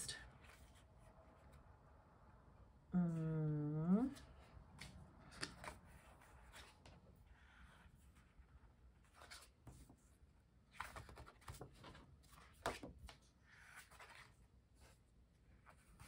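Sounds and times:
pages rustling and flicking: 10.7s - 15.0s.

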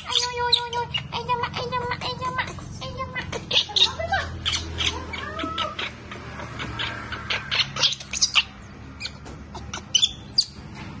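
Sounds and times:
baby monkey squeaking: 0.0s - 10.6s.

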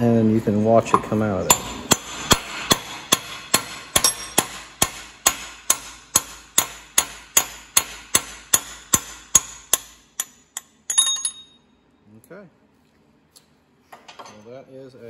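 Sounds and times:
hammer tapping on metal: 0.9s - 11.6s.

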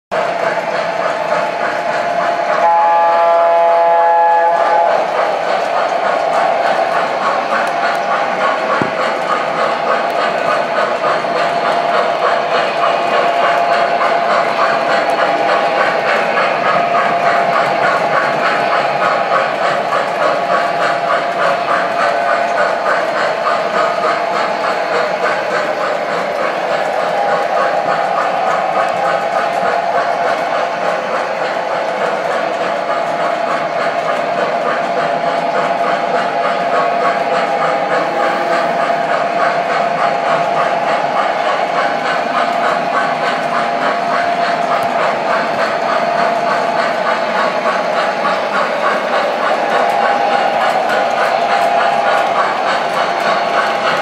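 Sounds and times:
even clicking of track: 0.1s - 2.7s, 4.4s - 54.0s
model steam locomotive chuffing: 0.1s - 54.0s.

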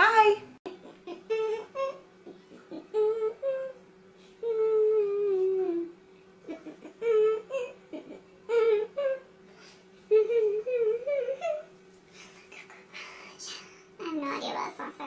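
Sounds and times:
woman humming: 0.7s - 9.3s, 10.0s - 11.7s.

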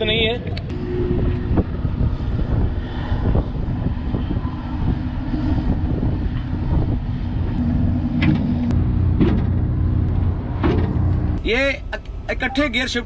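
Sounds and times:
diesel truck engine idling: 6.8s - 12.5s.

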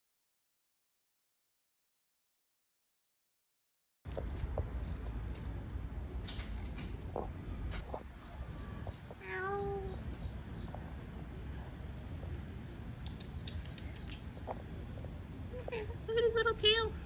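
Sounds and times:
handling noise: 4.1s - 8.1s
wind rumble: 4.1s - 9.3s
insect chorus drone: 4.1s - 17.0s.

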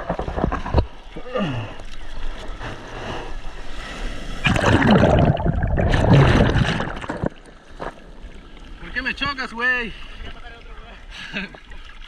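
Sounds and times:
sea water splashing and sloshing: 0.0s - 12.0s
arms paddling in water: 4.4s - 8.1s.

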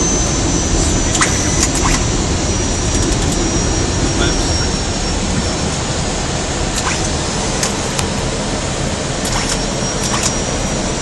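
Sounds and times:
faint high steady tone: 0.0s - 7.2s
airliner cockpit rushing noise: 0.0s - 11.0s.

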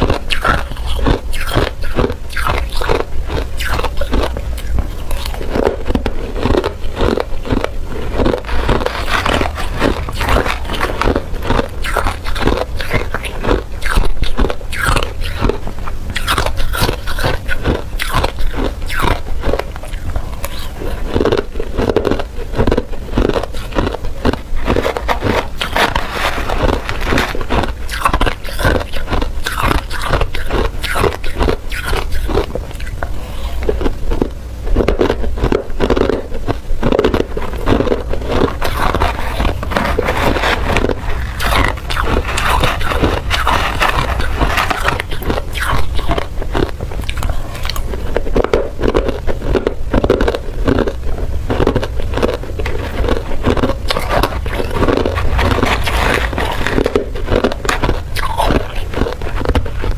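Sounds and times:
ice crunching while chewed: 0.0s - 59.9s
metal spoon scraping ice: 38.6s - 46.2s.

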